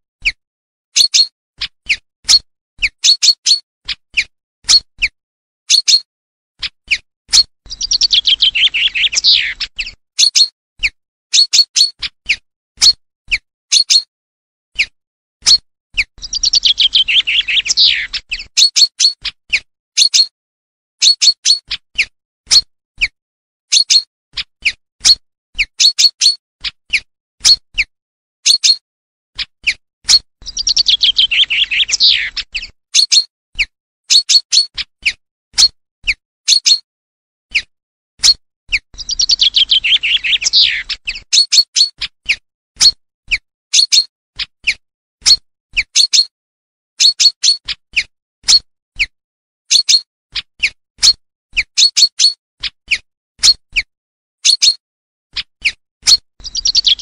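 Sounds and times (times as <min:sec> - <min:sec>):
chaffinch song trills: 0:07.7 - 0:10.0, 0:16.2 - 0:18.5, 0:30.4 - 0:32.7, 0:39.0 - 0:41.3.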